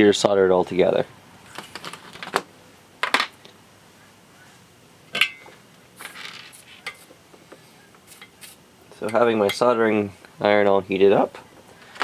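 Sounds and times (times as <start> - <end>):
metallic clink: 5.2 - 5.5.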